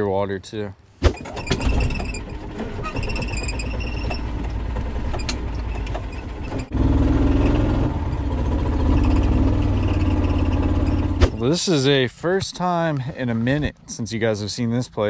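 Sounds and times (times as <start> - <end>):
rattles: 1.0 - 6.8
golf cart rumbling: 1.0 - 15.0.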